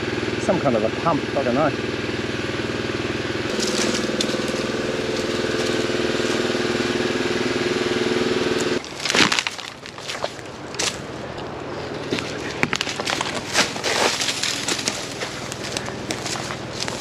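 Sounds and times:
pump motor pulsing: 0.0s - 17.0s
twigs crackling and snapping: 3.5s - 7.1s, 8.6s - 17.0s.

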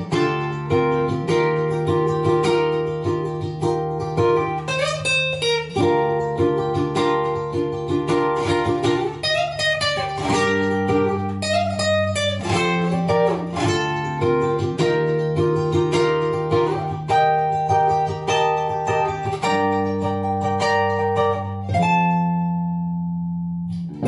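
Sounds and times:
plucked string music: 0.0s - 24.0s.

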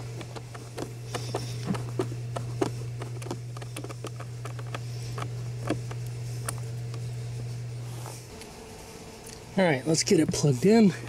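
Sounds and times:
steady low hum: 0.0s - 11.0s
screwdriver clicks and taps: 0.2s - 6.6s.

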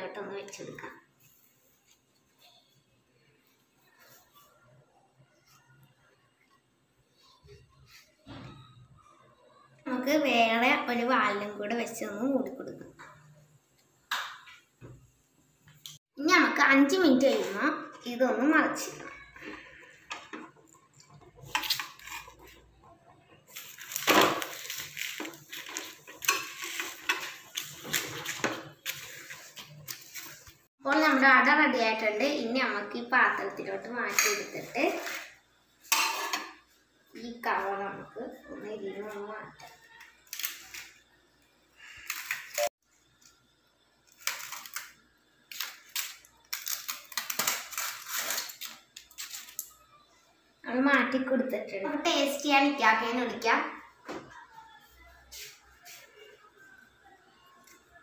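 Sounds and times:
metal spatula scraping a pan: 18.8s - 22.6s, 23.5s - 30.4s, 35.9s - 36.6s
dry leaf crackling and rustling: 23.5s - 27.0s.

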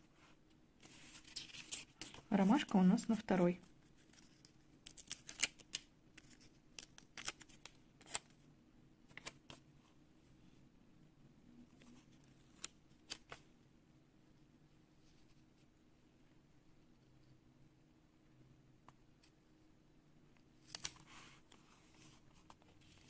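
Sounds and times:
paper sticker clicks and crackles: 4.1s - 8.4s, 20.6s - 21.1s.

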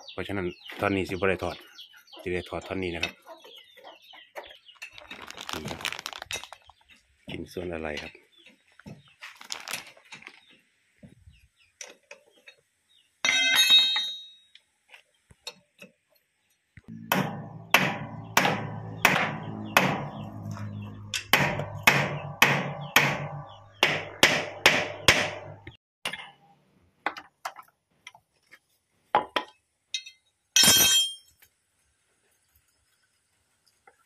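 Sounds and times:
hammer striking steel: 16.9s - 25.8s.

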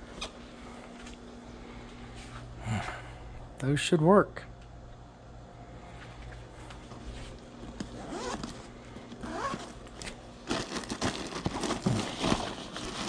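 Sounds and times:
plastic rustling and crinkling: 7.0s - 13.0s
zipper pulled open: 7.9s - 8.6s, 9.2s - 9.7s.

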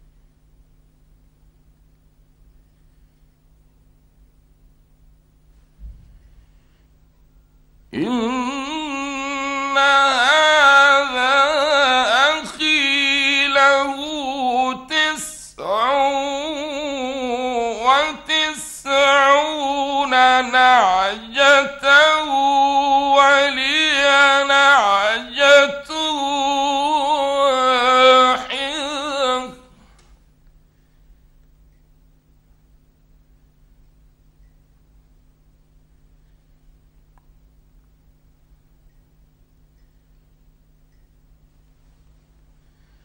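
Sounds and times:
man reciting melodically: 7.9s - 29.9s.

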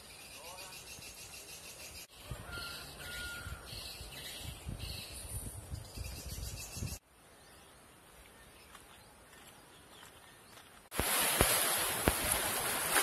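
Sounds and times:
wind rumbling on microphone: 2.2s - 7.0s.

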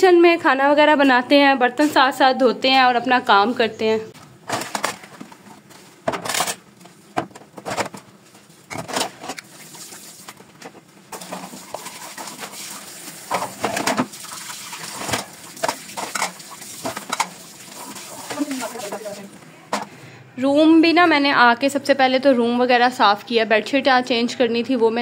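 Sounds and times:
dishes clattering: 15.0s - 17.4s.

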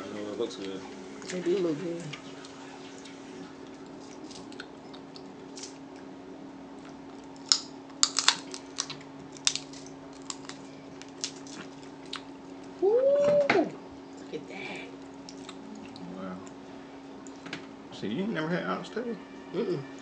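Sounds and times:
steady low hum: 0.0s - 20.0s
crab shells cracking: 6.9s - 12.3s.

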